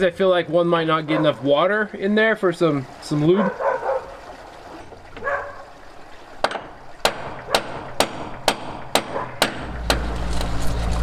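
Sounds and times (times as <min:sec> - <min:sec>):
hammer striking metal plate: 0:06.4 - 0:10.1.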